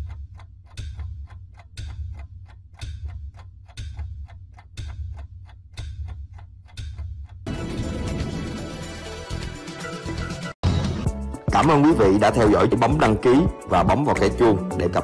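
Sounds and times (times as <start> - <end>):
loud tick and low thud: 0.0 - 8.6
music: 7.4 - 15.0.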